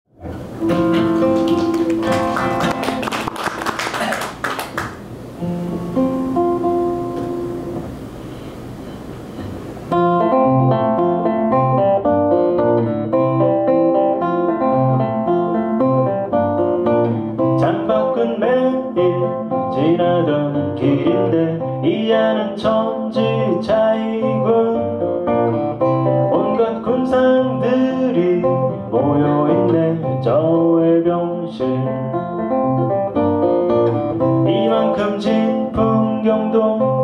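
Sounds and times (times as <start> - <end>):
classical guitar finger-style: 0.2 - 3.0, 5.4 - 8.0, 8.9 - 37.0
man singing: 17.4 - 25.1, 26.1 - 32.5, 34.3 - 37.0.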